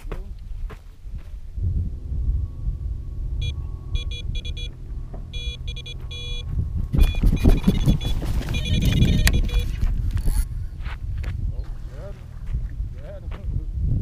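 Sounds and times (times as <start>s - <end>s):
electronic bite alarm beeping: 3.4s - 10.4s
rustling and knocking: 6.9s - 10.1s.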